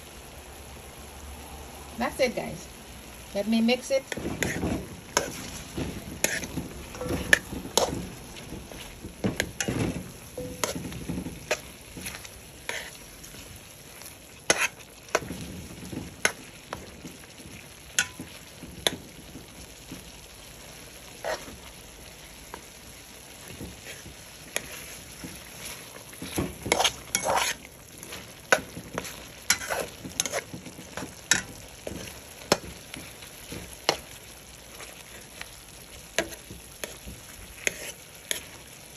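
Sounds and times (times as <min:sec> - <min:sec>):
chicken sizzling in a metal pot: 0:00.0 - 0:38.9
spatula scraping and knocking pot: 0:04.0 - 0:35.6, 0:36.2 - 0:38.7.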